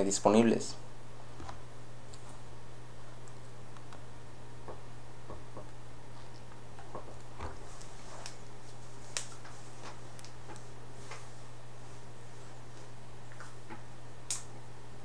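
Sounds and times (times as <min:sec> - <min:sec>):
steady low hum: 0:00.0 - 0:15.0
faint ticks and clicks: 0:03.1 - 0:04.1.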